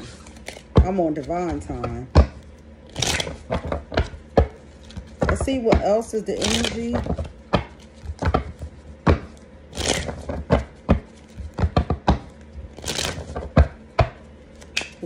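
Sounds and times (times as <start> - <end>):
cards shuffling: 2.9 - 4.1, 4.7 - 5.4, 6.4 - 7.2, 9.7 - 11.8, 12.8 - 13.5, 14.5 - 15.0.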